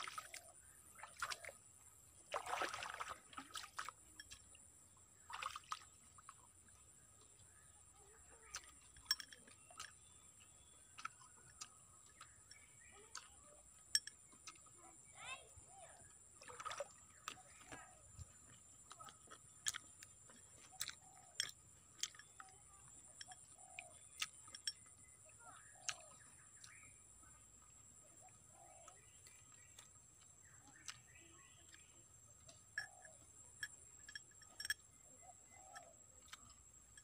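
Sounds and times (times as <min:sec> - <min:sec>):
bird coos and chirps: 0:20.7 - 0:21.4, 0:23.2 - 0:24.2, 0:28.2 - 0:29.4, 0:32.7 - 0:33.3, 0:34.6 - 0:36.3.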